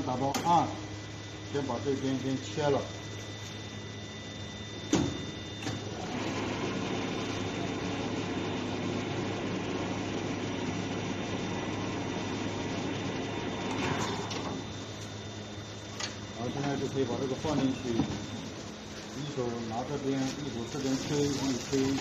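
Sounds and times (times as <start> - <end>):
machine whirring: 4.5 - 22.0.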